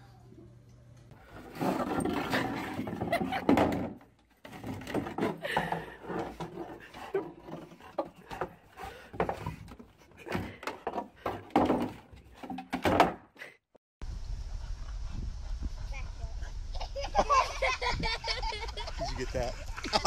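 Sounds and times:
plastic shovel scraping wooden deck: 1.2 - 12.6.

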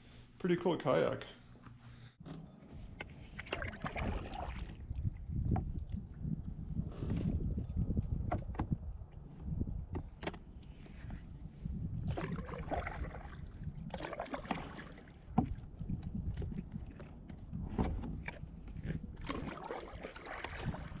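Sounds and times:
wind rumble on microphone: 2.9 - 21.0
water splashing against hull: 3.0 - 6.1, 12.0 - 21.0.

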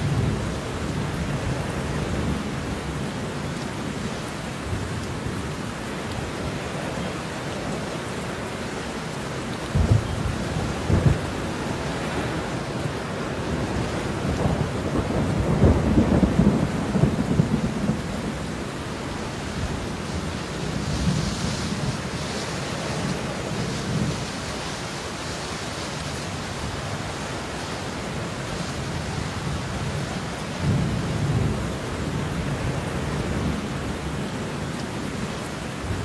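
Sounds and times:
steady rain: 0.0 - 36.0
rolling thunder: 9.7 - 24.4.

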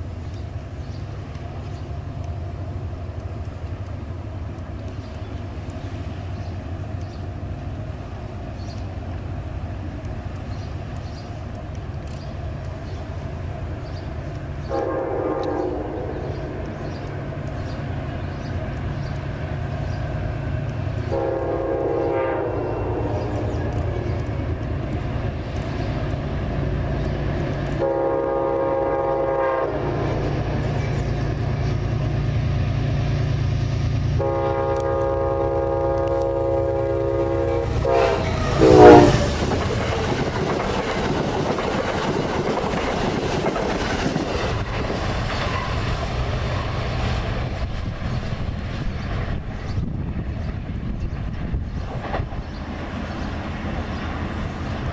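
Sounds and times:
locomotive engine rumble: 0.0 - 54.9
locomotive air horn blasts: 14.7 - 16.2, 21.1 - 23.8, 27.8 - 30.3, 34.2 - 39.4.

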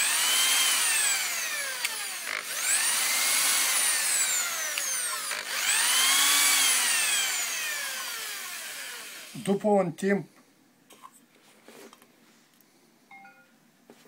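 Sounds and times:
cordless drill motor whine: 0.0 - 9.4.

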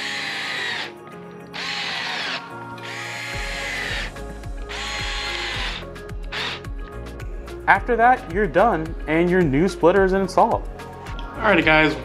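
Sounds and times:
cordless driver whining: 0.0 - 6.8
background music: 0.0 - 12.0.

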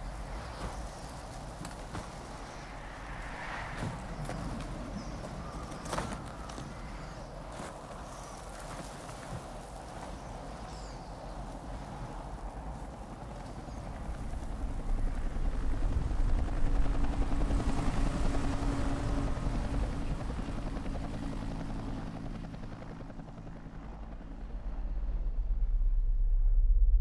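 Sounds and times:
low rumbling whooshing effects: 24.0 - 27.0.

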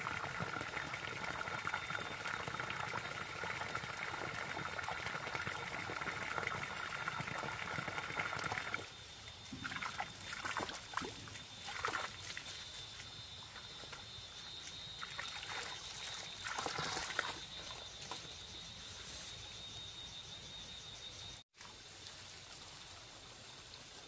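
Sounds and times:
water trickling and splashing: 0.0 - 18.3
footsteps rustling in grass: 18.0 - 20.0, 21.1 - 24.0.

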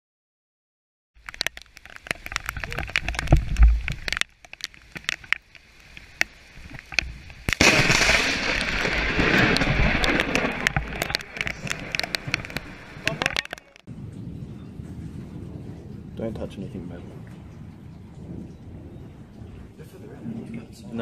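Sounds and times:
rain clicking on camera: 1.2 - 14.3, 15.0 - 21.0
thunder crash and roar: 7.6 - 13.2, 13.9 - 21.0.

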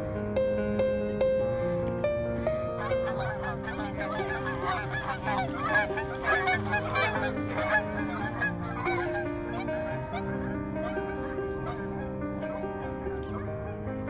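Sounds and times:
music with long held notes: 0.0 - 14.0
geese honking: 2.8 - 13.9.

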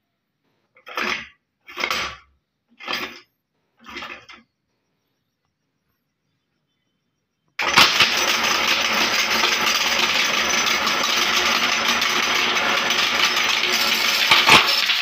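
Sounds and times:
marbles pouring into metal hopper: 7.6 - 15.0
glass marbles clattering: 7.8 - 15.0.

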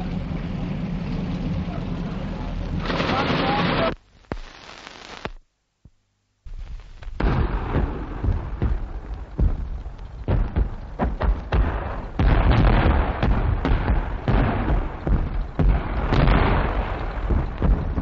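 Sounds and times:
artillery guns firing: 2.8 - 3.9, 7.2 - 18.0.

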